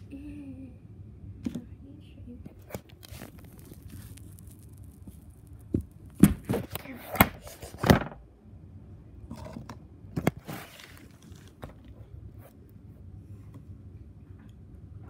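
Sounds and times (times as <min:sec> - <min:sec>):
handling noise on phone: 0:02.6 - 0:08.2, 0:10.2 - 0:12.0.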